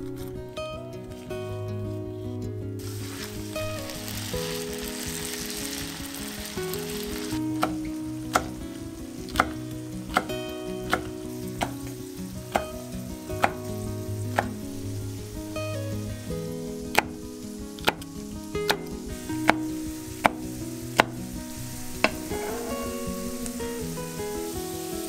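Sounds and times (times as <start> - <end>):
light background music: 0.0 - 25.0
soft even hiss: 0.2 - 25.0
knife hitting cutting board: 13.4 - 13.6.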